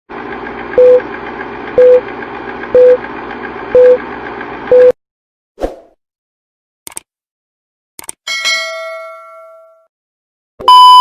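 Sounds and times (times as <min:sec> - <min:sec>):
short loud beeps: 0:10.6 - 0:11.0.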